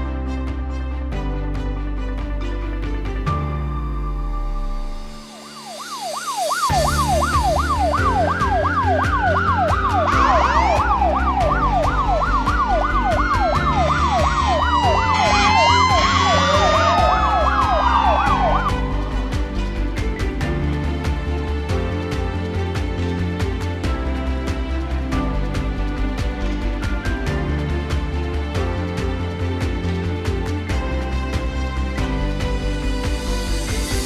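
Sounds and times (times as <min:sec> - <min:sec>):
background music with beat: 0:00.0 - 0:34.0
siren wailing: 0:05.2 - 0:18.8
fire engine siren yelp: 0:05.2 - 0:19.0.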